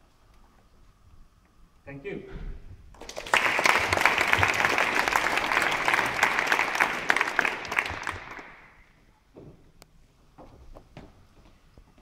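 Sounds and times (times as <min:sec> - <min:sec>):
audience applauding: 0:03.0 - 0:09.0.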